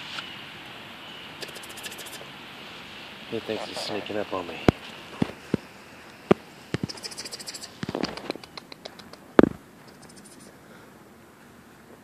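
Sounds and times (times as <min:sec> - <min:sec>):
rapid high ticking: 0:01.4 - 0:02.2, 0:06.3 - 0:10.5.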